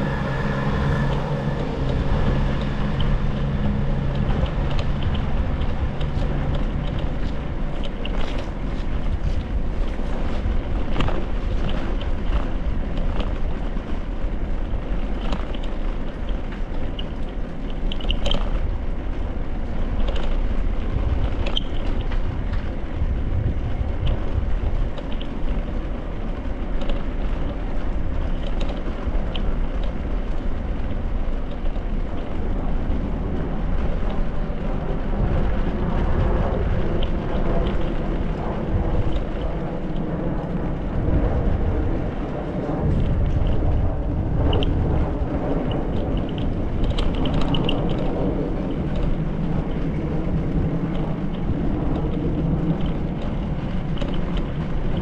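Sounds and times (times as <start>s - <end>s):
wind on microphone: 0.0s - 55.0s.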